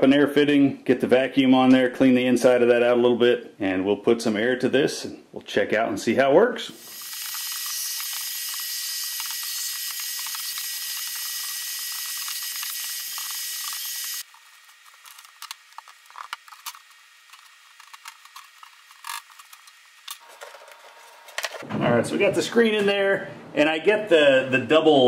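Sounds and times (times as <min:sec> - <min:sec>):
vacuum cleaner running: 0:06.8 - 0:15.2.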